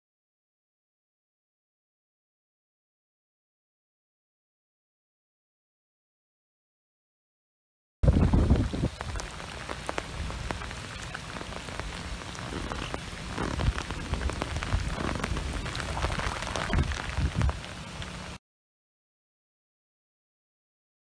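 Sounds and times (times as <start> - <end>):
heavy rain falling on water: 8.0 - 18.4.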